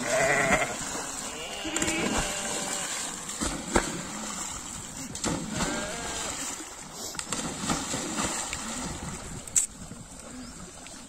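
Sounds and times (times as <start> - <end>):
faint bleats: 0.0 - 3.0, 5.5 - 6.3
animals splashing into water: 0.0 - 11.0.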